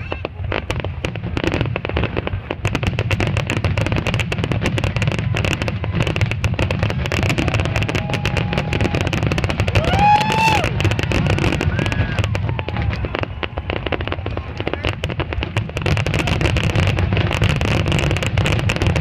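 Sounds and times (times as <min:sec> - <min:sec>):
fireworks bursting: 0:00.0 - 0:19.0
spectator whooping: 0:07.2 - 0:13.8.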